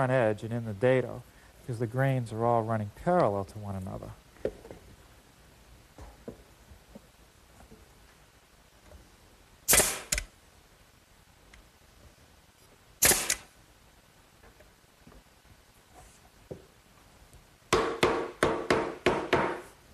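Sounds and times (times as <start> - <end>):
nail gun air hiss: 9.7 - 10.3, 13.0 - 13.5
nail gun shots: 9.7 - 10.3, 13.0 - 13.5.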